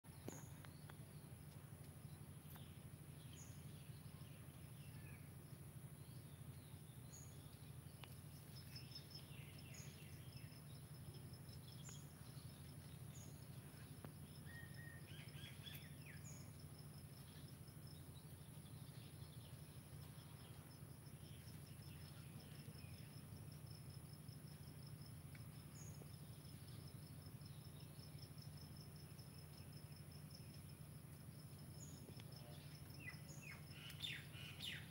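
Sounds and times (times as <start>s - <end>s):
birds chirping: 0.1s - 23.6s, 31.4s - 34.9s
insect pulsing trill: 0.1s - 34.9s
low constant hum: 0.1s - 34.9s.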